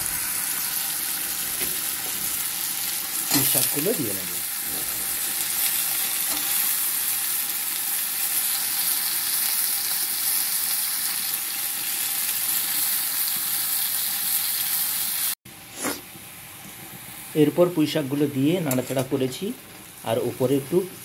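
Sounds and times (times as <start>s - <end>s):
vegetables frying sizzle: 0.0s - 21.0s.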